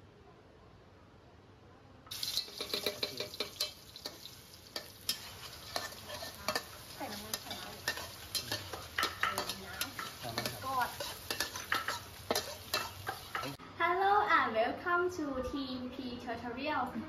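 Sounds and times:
food sizzling in hot oil: 2.1 - 13.6
metal spatula scraping a wok: 2.2 - 13.6.

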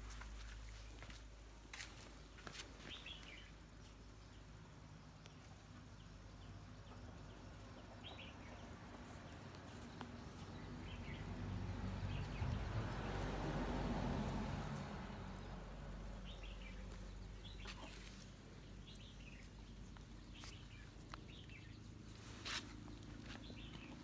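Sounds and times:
rustling: 16.7 - 24.0.

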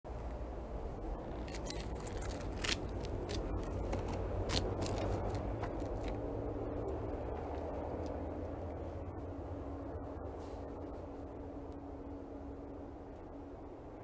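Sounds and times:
low outdoor rumble: 0.1 - 14.0
clicks and scuffs: 1.4 - 6.3.

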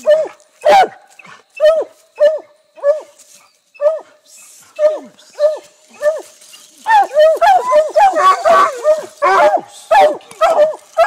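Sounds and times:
hound barking: 0.0 - 1.0, 6.9 - 11.0.

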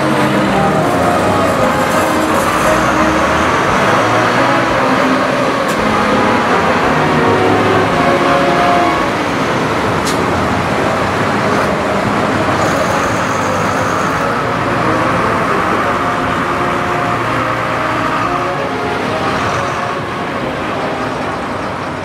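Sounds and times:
machinery engine running: 0.0 - 22.0.

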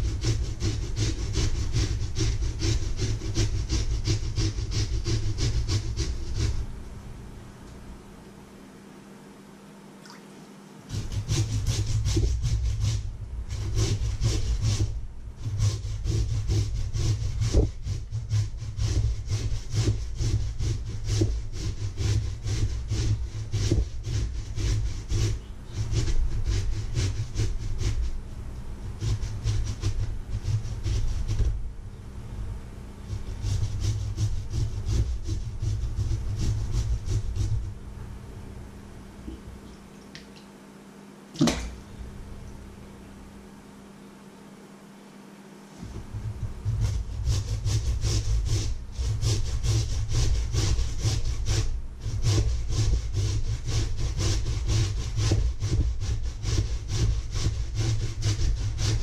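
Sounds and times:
potatoes rasping on metal grater: 0.0 - 6.7, 10.9 - 28.2, 28.8 - 31.6, 33.1 - 37.6, 46.2 - 59.0.

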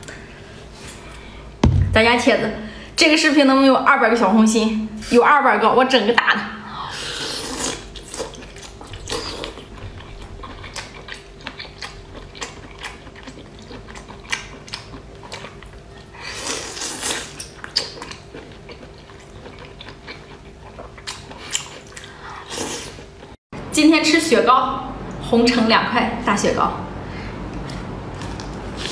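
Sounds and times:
faint steady hum: 0.0 - 28.9
biting and chewing: 7.4 - 23.4.

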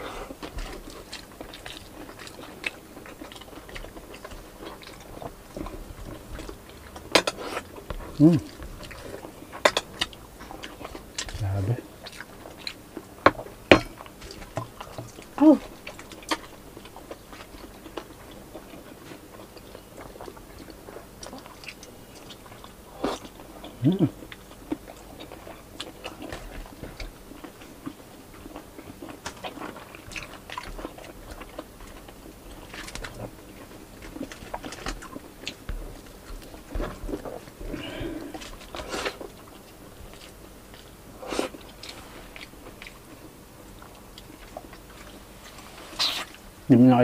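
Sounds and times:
chewing and lip smacking: 0.3 - 46.4.

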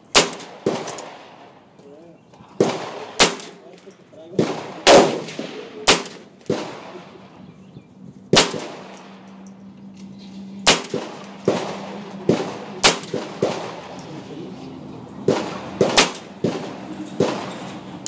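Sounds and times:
pistol firing single shots: 0.1 - 1.6, 2.6 - 3.7, 4.3 - 7.4, 8.3 - 9.4, 10.6 - 14.1, 15.2 - 17.7.

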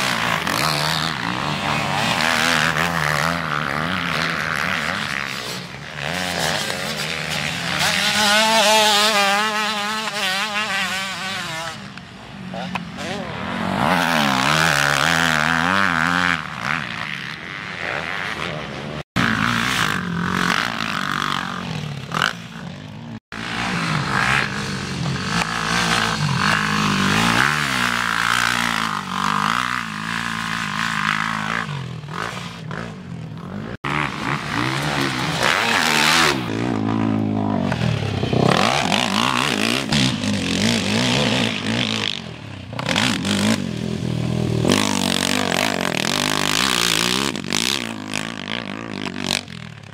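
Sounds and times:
quad engines revving: 0.0 - 49.9.

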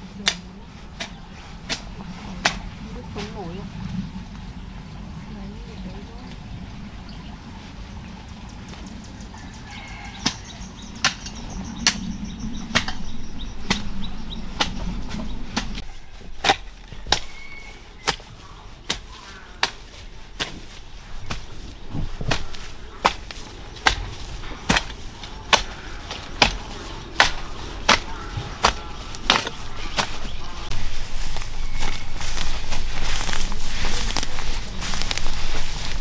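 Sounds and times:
garden hoe chopping into soil: 14.5 - 36.0.

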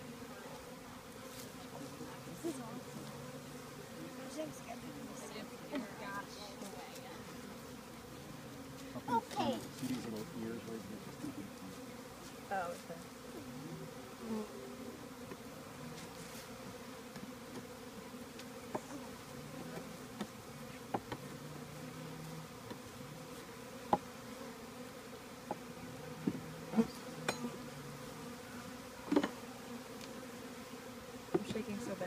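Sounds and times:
honey bees buzzing: 0.0 - 32.0
wooden hive frames knocking: 19.7 - 21.3.

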